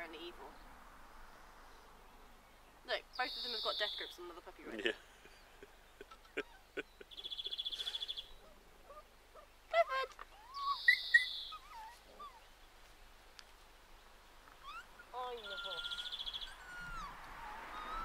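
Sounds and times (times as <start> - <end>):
puppies yelping and squealing: 10.3 - 12.5, 14.5 - 18.0.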